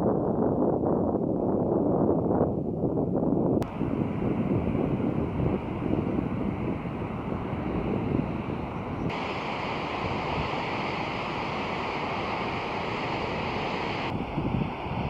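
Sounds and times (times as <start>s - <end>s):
wind buffeting microphone: 0.0s - 15.0s
ocean surf: 3.6s - 14.9s.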